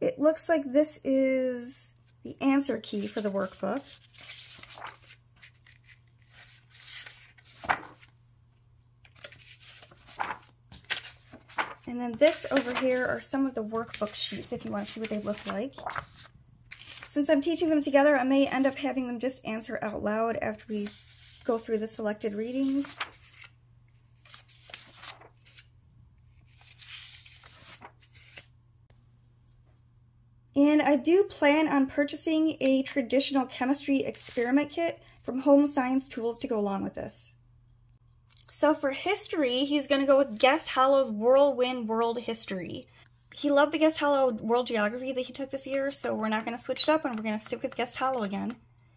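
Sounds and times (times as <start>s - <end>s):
paper sheets rustling: 2.6s - 8.2s, 9.0s - 18.8s, 20.5s - 23.6s, 24.2s - 25.7s, 26.4s - 28.5s, 44.6s - 48.6s.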